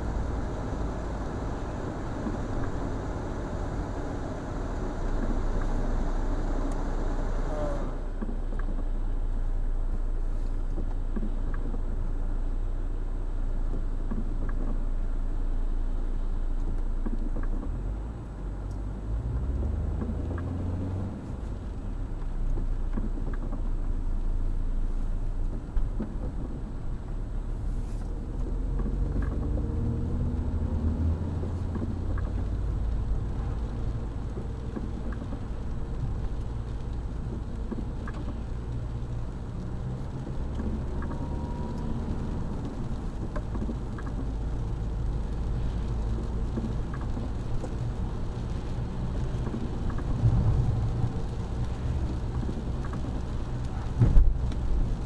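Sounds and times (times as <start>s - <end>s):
car engine and tyres rumbling: 0.0s - 55.0s
light ticks: 10.4s - 11.9s, 16.6s - 17.8s, 18.6s - 18.9s, 27.8s - 55.0s.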